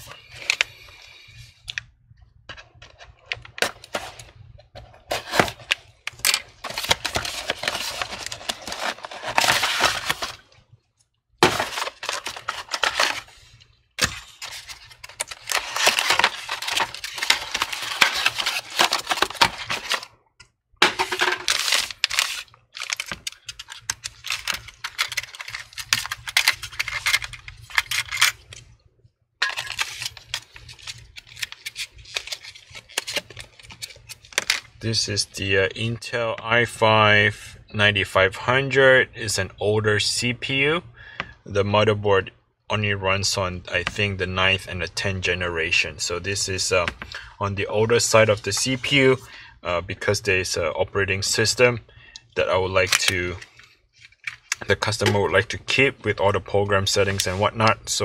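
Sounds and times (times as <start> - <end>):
plastic tray crackling: 5.2 - 10.5, 11.4 - 13.4, 14.0 - 20.1, 20.8 - 28.4.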